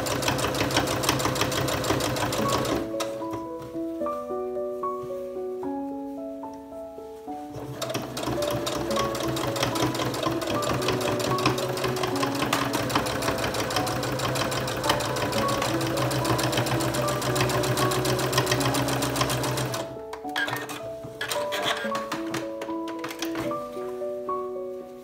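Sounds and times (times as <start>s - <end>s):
sewing machine stitching: 0.0s - 3.2s, 7.5s - 23.5s.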